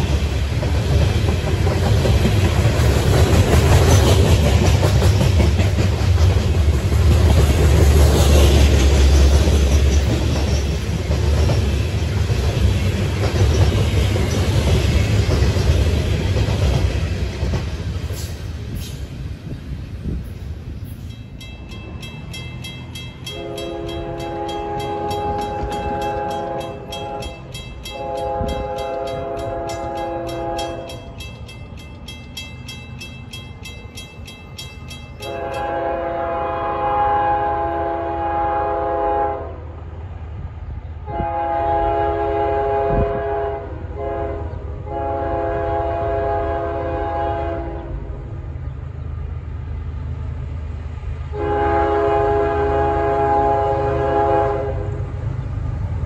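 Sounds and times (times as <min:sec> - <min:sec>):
crossing bell ringing: 0:20.9 - 0:36.1
train air horn blasts: 0:23.3 - 0:31.1, 0:35.2 - 0:39.7, 0:41.1 - 0:48.0, 0:51.3 - 0:55.0.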